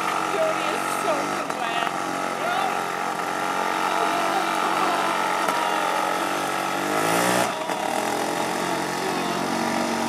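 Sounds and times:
dirt bike engine revving: 0.0s - 10.0s
tyre churning water spray: 0.0s - 10.0s.

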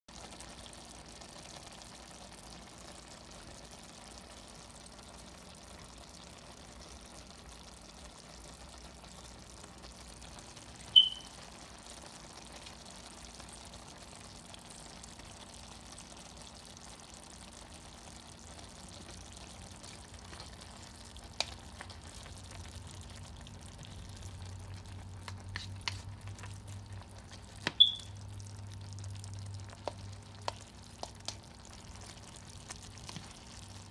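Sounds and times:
food simmering in a pan: 0.1s - 33.9s
short high pings: 11.0s - 11.4s, 27.8s - 28.2s.

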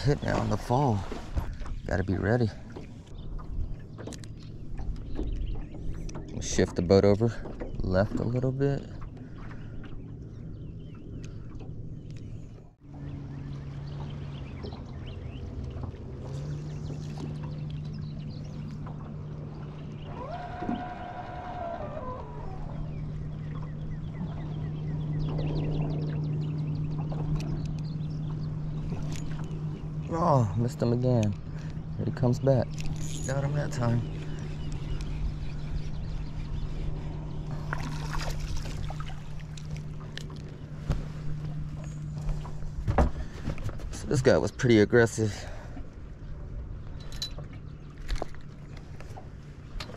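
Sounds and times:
short splashes and clicks: 0.0s - 10.0s, 13.9s - 22.4s, 26.9s - 30.1s, 31.0s - 35.2s, 37.5s - 44.4s, 47.0s - 49.9s
water sloshing against boat hull: 0.0s - 49.9s
electric trolling motor humming: 9.0s - 44.2s.

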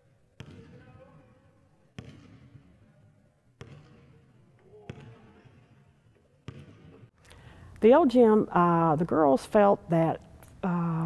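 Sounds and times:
basketball bouncing on wooden floor: 0.4s - 0.9s, 2.0s - 2.7s, 3.6s - 7.1s.

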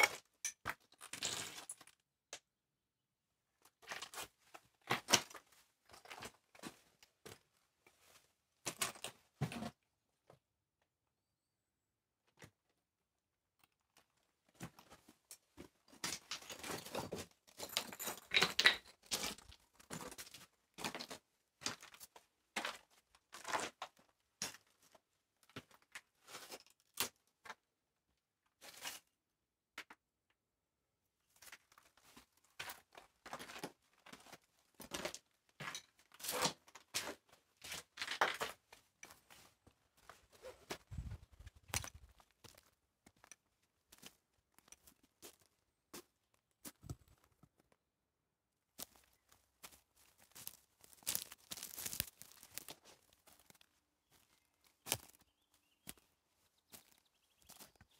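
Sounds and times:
footsteps crunching on rubble: 48.8s - 56.1s.

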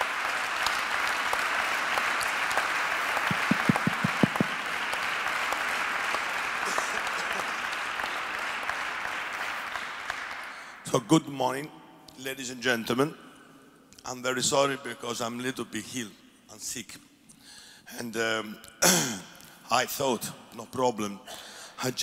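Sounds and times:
audience applauding: 0.0s - 10.8s
loud claps close by: 0.0s - 10.8s.

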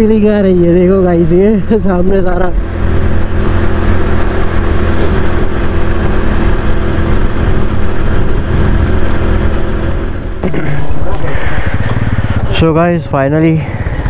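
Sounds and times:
motorcycle engine running: 0.0s - 14.0s
wind and road noise: 0.0s - 14.0s.

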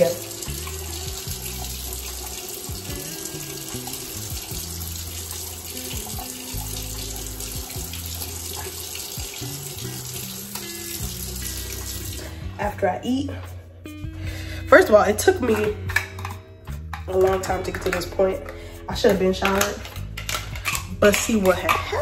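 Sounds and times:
water running from a tap: 0.0s - 12.5s, 19.0s - 22.0s
background music with bass: 0.0s - 22.0s.

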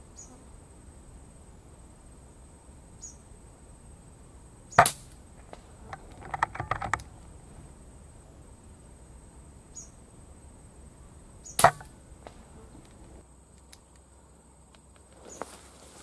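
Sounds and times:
air rifle shot: 11.6s - 11.9s.

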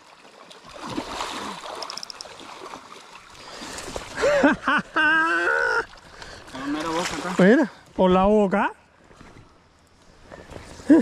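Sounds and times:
water splashing: 0.0s - 7.8s.

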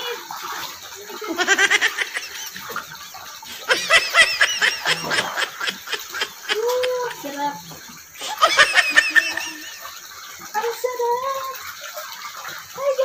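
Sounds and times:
water splashing: 0.0s - 13.0s
woman laughing: 1.2s - 2.7s, 3.6s - 7.3s, 8.2s - 9.9s.

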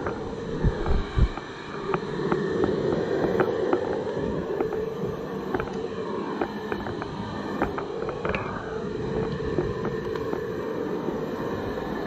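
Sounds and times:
hair dryer running: 0.0s - 8.0s.

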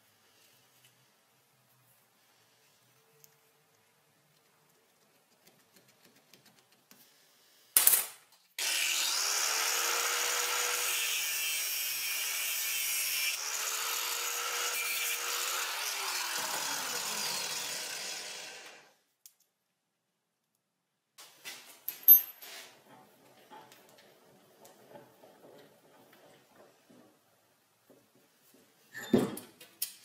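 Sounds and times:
angle grinder cutting metal: 8.6s - 18.9s.

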